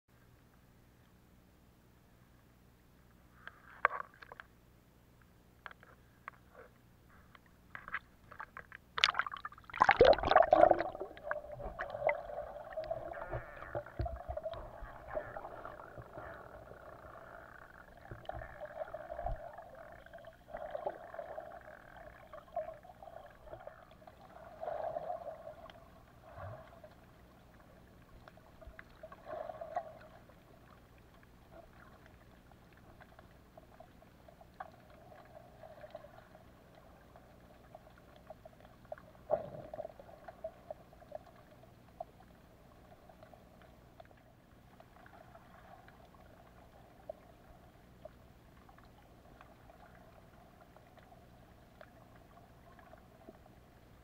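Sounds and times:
muffled underwater rushing: 9.0 - 37.8.

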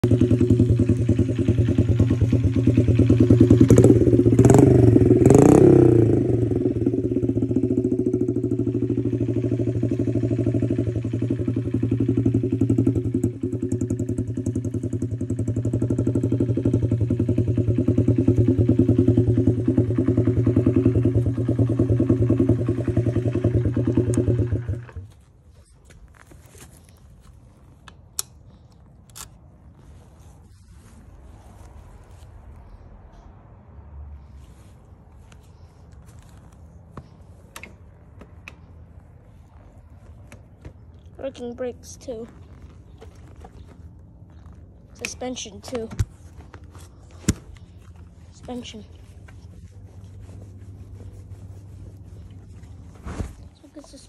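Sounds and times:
dirt bike engine revving and idling: 0.0 - 25.2, 35.4 - 50.2.

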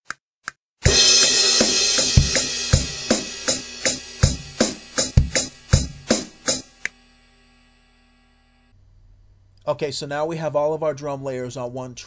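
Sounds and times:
drum machine beat: 0.8 - 6.9
crash cymbal ringing: 0.9 - 6.8.

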